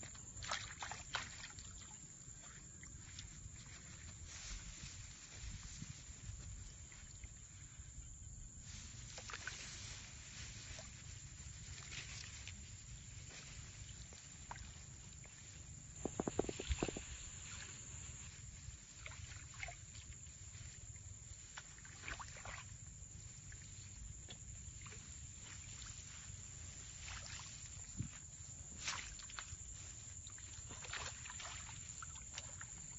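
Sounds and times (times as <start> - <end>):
water lapping: 0.1 - 4.0, 29.1 - 32.9
wind rumble on microphone: 2.8 - 19.0.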